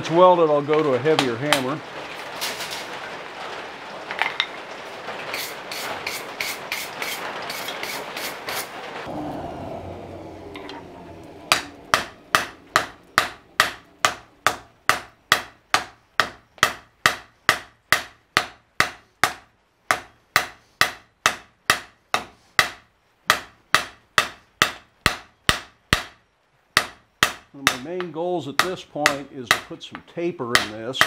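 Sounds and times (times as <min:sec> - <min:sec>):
hiss: 0:05.3 - 0:08.8
hammer striking steel on anvil: 0:11.5 - 0:26.2, 0:26.8 - 0:29.7, 0:30.5 - 0:31.0.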